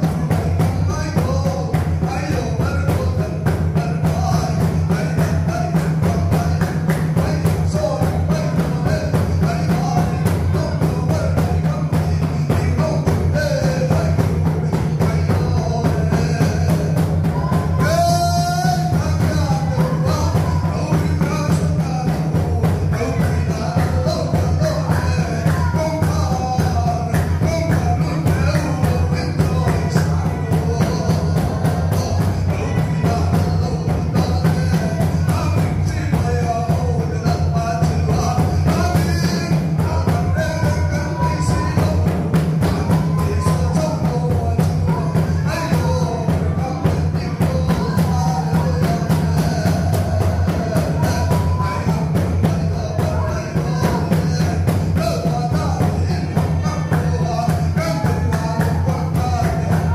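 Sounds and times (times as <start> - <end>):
fast drum beat: 0.0 - 59.9
voices singing a hymn: 0.0 - 59.9.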